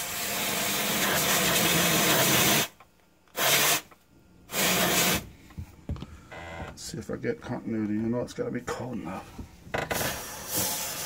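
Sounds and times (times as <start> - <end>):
compressed gas duster hissing: 0.0 - 5.7, 9.8 - 11.0.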